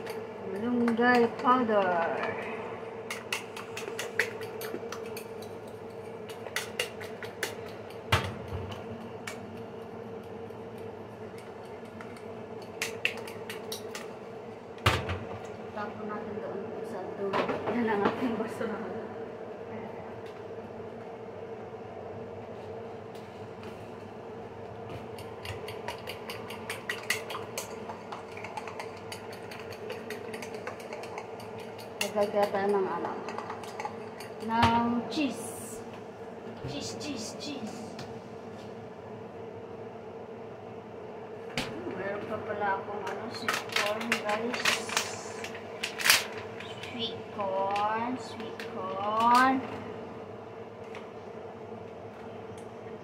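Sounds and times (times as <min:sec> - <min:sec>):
steady hum: 0:00.0 - 0:53.0
fork clicking against a bowl: 0:03.1 - 0:08.0, 0:25.2 - 0:34.5.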